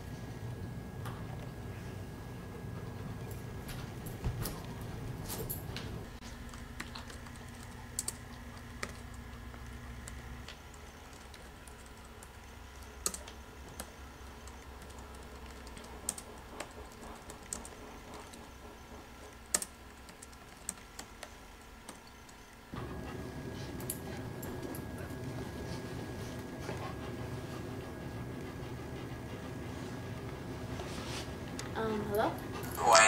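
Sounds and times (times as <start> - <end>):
laptop keyboard typing: 6.5 - 18.6, 19.3 - 22.1.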